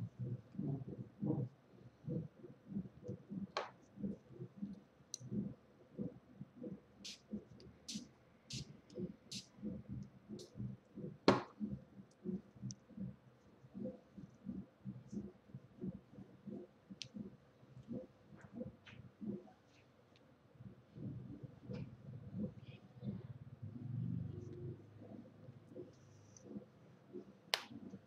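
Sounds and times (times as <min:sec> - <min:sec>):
hands rubbing a hand: 0:07.0 - 0:09.6.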